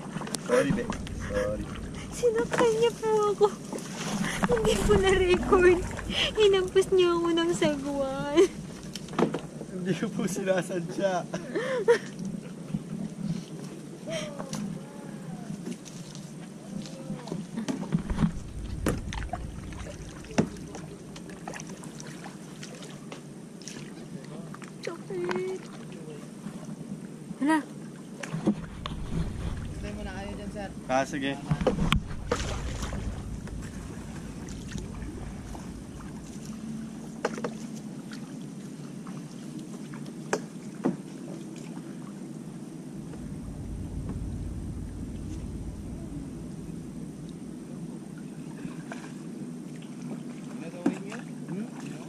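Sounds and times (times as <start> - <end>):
paddle splashing in water: 0.0 - 9.6, 15.6 - 26.6, 28.2 - 42.2, 48.3 - 52.0.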